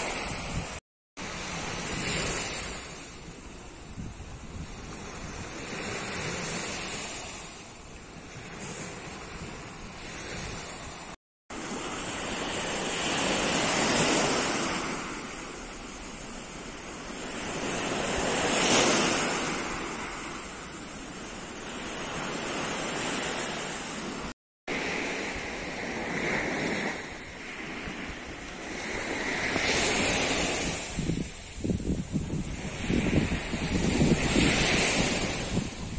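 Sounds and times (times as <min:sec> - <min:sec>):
surf breaking on beach: 0:08.4 - 0:35.9.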